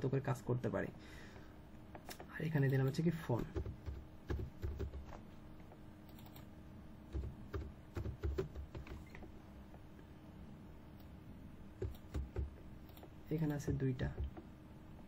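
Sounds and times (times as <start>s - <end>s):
keyboard typing: 2.0s - 5.2s, 6.1s - 6.5s, 7.1s - 9.3s, 11.8s - 14.4s.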